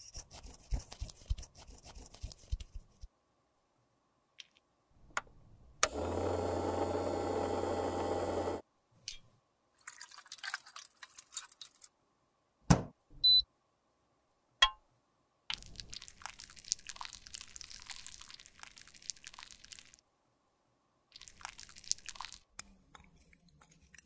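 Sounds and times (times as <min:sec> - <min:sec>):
appliance buzzing hum: 0:05.8 - 0:08.6.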